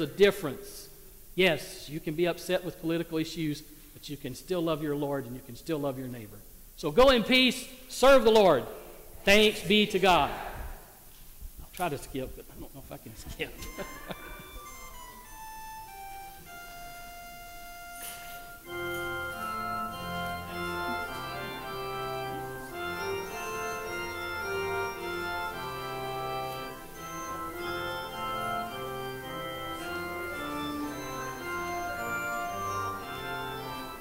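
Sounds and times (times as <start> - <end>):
church organ chords: 0.0 - 3.6, 13.4 - 34.0.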